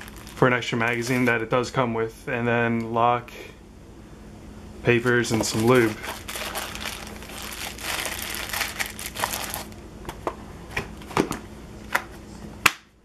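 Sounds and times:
plastic bag crinkling: 0.0s - 1.4s, 5.2s - 9.8s.

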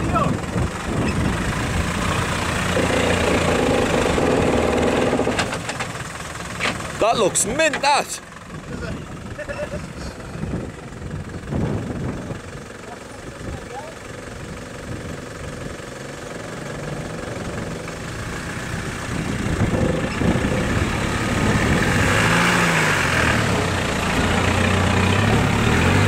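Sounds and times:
truck engine revving in mud: 0.0s - 5.8s, 15.3s - 26.0s.

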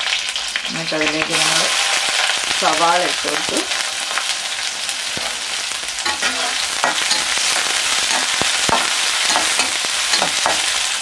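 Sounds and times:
onions sizzling in hot oil: 0.0s - 11.0s
spatula scraping a pan: 5.2s - 10.9s.

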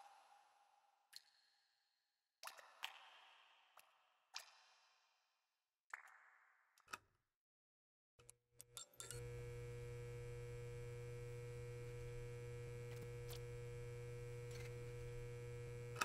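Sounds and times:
neon sign electrical hum: 9.0s - 16.0s
crackling clicks: 9.1s - 16.0s.

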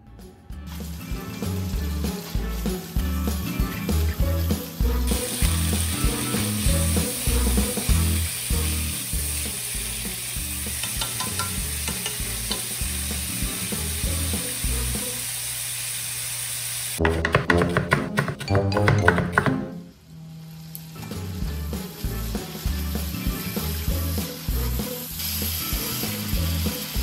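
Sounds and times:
meat sizzling in a wok: 0.7s - 17.0s, 20.8s - 27.0s.

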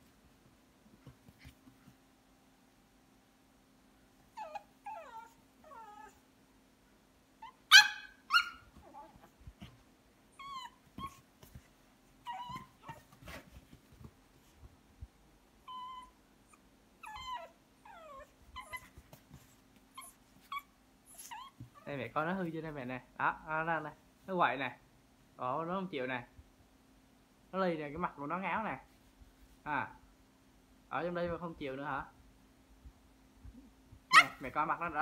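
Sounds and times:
puppy whining and yelping: 4.3s - 6.3s, 7.4s - 11.6s, 12.2s - 13.5s, 15.6s - 21.9s, 34.1s - 34.4s.

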